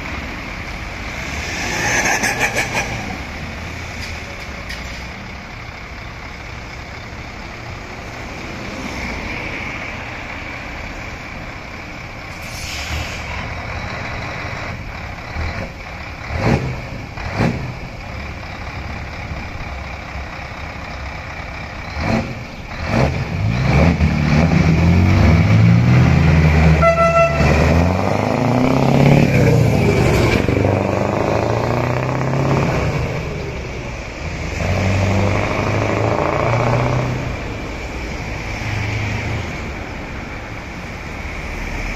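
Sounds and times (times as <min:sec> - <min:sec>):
truck engine accelerating: 0:00.0 - 0:41.9
horn toot: 0:26.8 - 0:27.8.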